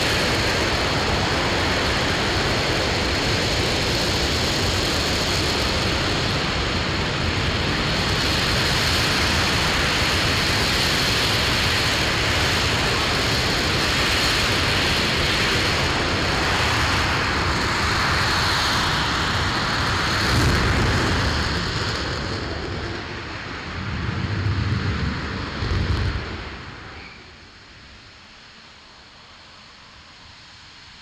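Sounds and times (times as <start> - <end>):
rocket engine roaring: 0.0 - 30.0
low rumbles: 18.8 - 27.5.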